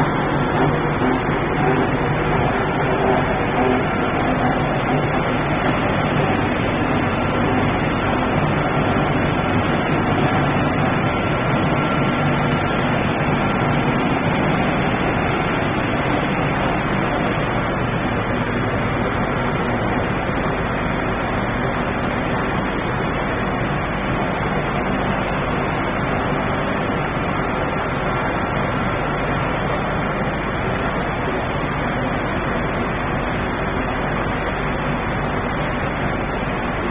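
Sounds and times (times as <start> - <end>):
drum dryer mechanical noise: 0.0 - 36.9
faint machine whine: 0.0 - 36.9.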